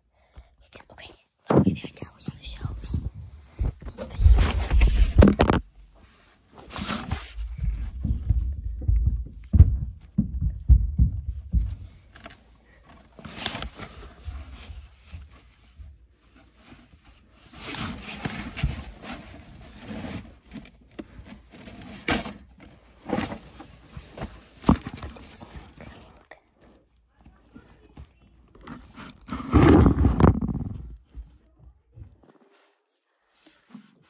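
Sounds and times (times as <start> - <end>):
cloth rustling on microphone: 1.5 - 10.2, 28.6 - 31.2
heavy low bumps: 7.4 - 12.1.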